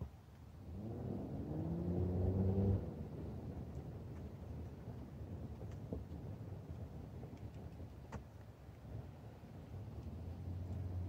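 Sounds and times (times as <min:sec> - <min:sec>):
vehicle engine revving: 0:00.7 - 0:03.0.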